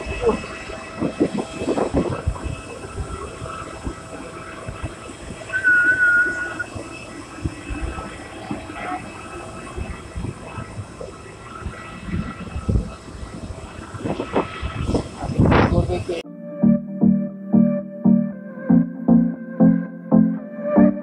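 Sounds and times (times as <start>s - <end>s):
high wavering tone: 0.0s - 10.7s, 16.2s - 21.0s.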